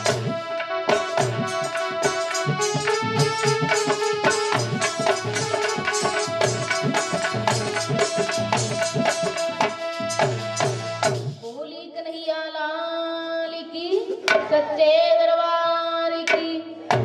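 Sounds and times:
held chords: 0.0 - 11.2
hand drum beating: 0.0 - 11.3
woman singing into a microphone: 11.4 - 17.0.

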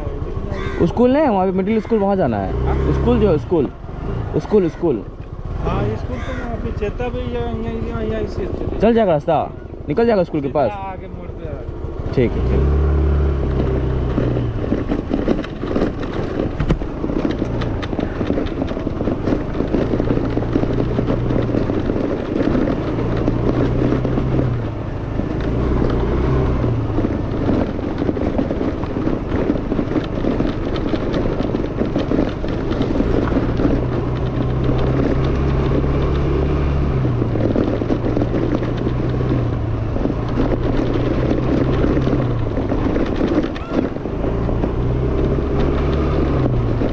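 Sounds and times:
scooter engine running: 0.0 - 46.9
wind noise on microphone: 13.4 - 46.9.

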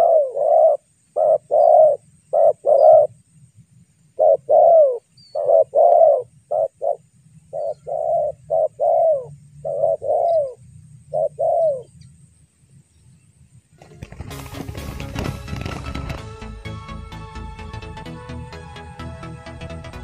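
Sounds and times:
dove cooing: 0.0 - 3.2, 4.2 - 12.0.

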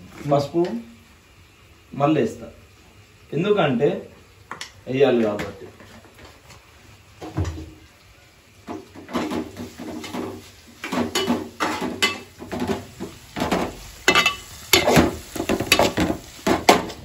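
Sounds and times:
steel spatula scraping a pan: 14.1 - 16.8.

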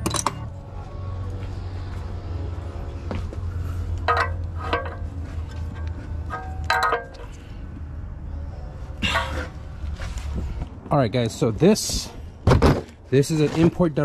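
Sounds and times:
wrench clinking on metal: 0.0 - 0.5, 4.0 - 5.0, 5.8 - 7.4
steady low hum: 0.0 - 12.5.

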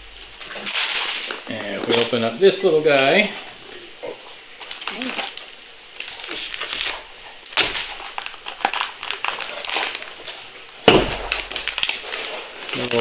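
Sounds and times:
cardboard rustling and crinkling: 4.6 - 13.0.

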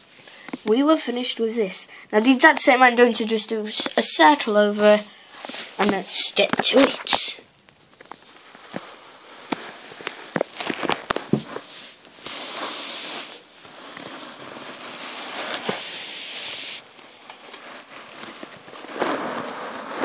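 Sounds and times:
rustling over carpet: 3.7 - 7.2, 8.2 - 20.0.

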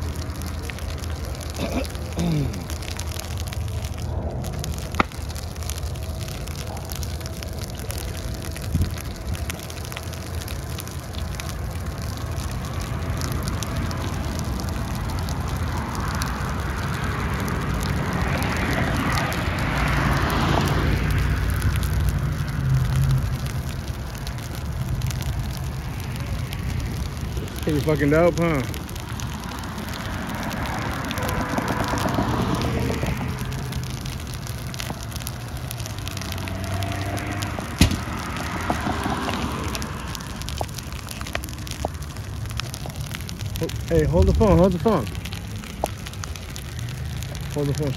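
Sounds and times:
fire crackling and popping: 0.0 - 47.9
low steady rumble: 0.0 - 47.9
loud sharp pop from fire: 4.8 - 5.3, 36.6 - 40.8
car passing on road: 10.4 - 47.9.

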